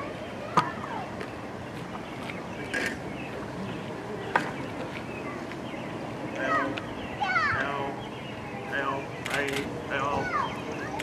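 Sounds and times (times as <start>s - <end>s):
faint indistinct voices: 0.0s - 11.0s
sharp clicks: 9.2s - 9.7s.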